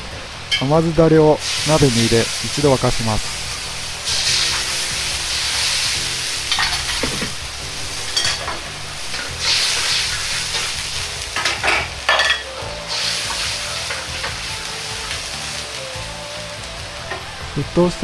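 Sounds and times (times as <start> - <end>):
sauce sizzling in a wok: 0.0 - 18.0
metal ladle scraping a wok: 3.3 - 14.4.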